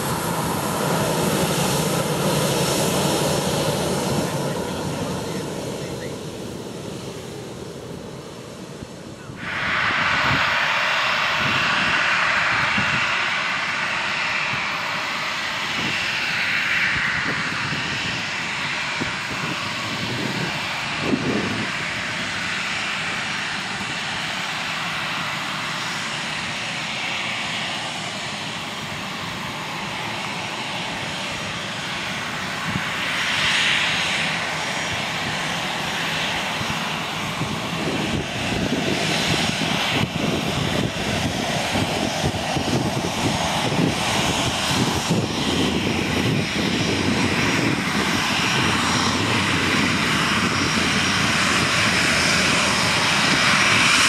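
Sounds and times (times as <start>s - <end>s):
jet engines whine and rumble: 0.0s - 54.0s.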